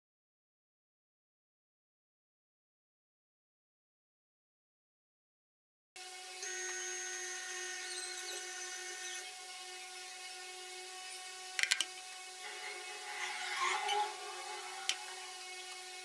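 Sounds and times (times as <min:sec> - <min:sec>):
steady whine of held tones: 0:06.0 - 0:16.0.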